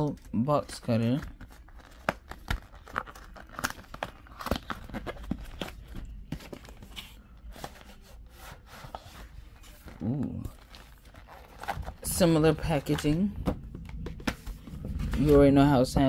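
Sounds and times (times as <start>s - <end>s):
wrapping rustling and tearing: 0.0s - 13.2s.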